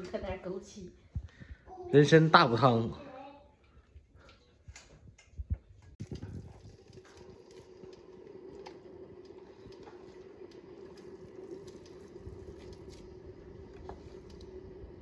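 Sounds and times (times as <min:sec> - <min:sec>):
steady hum: 0:05.4 - 0:15.0.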